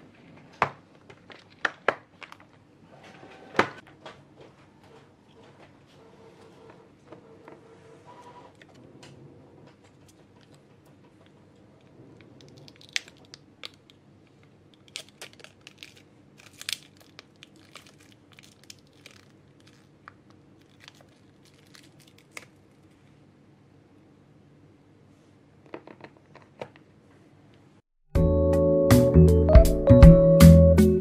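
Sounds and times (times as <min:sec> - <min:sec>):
packaging crinkling and tearing: 0:01.0 - 0:02.6, 0:12.2 - 0:23.1.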